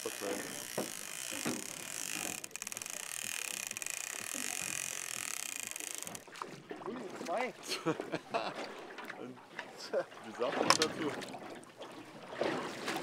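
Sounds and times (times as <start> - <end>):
fishing reel ratcheting: 0.0 - 6.5.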